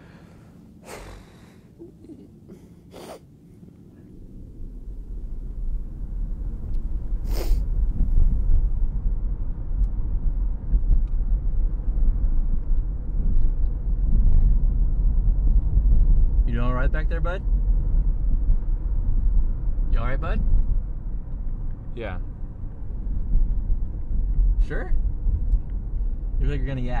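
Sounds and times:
man sniffing: 0:00.8 - 0:01.8, 0:02.5 - 0:03.3, 0:07.2 - 0:07.7
car cabin rumble: 0:03.6 - 0:27.0.

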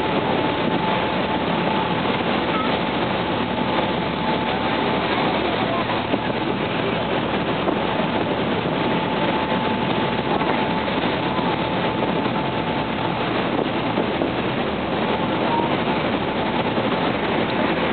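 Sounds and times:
boat engine running: 0:00.0 - 0:17.9
wake water churning: 0:00.0 - 0:17.9
faint steady high tone: 0:02.5 - 0:02.7.

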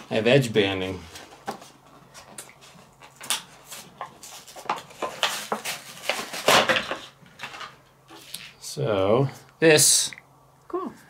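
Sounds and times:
plastic packaging crinkling: 0:02.2 - 0:07.8.

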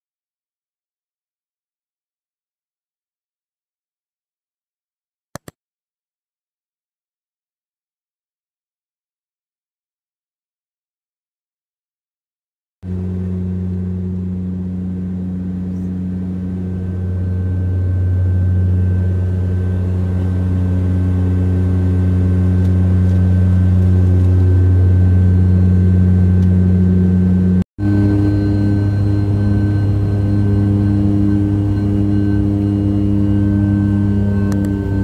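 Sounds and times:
propeller plane engine drone: 0:12.8 - 0:35.0
faint high whine: 0:12.9 - 0:35.0.

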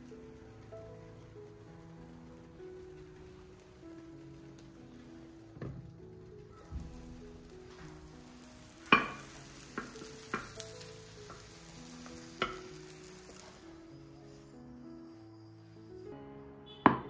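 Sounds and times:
omelette sizzling in a pan: 0:00.0 - 0:15.5.

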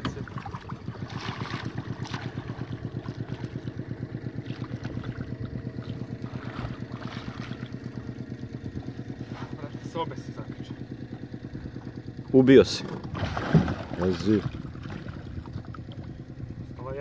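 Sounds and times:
outboard motor idling: 0:00.0 - 0:17.0
fish splashing at surface: 0:13.0 - 0:16.1.

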